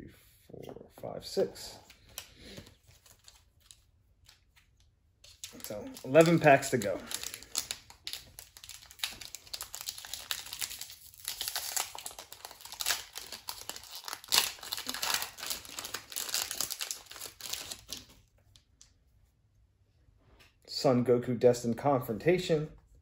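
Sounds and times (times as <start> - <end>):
wrapper crinkling and tearing: 2.0 - 18.3.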